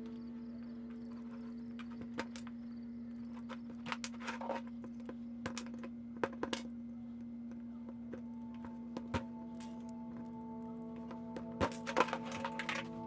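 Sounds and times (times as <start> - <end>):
steady low hum: 0.0 - 13.0
wires and wire stripper rattling: 11.0 - 13.0.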